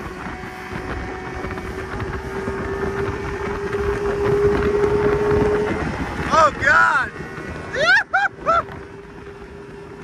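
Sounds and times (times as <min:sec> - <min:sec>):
outboard motor whine: 0:00.0 - 0:10.0
wind buffeting microphone: 0:00.0 - 0:10.0.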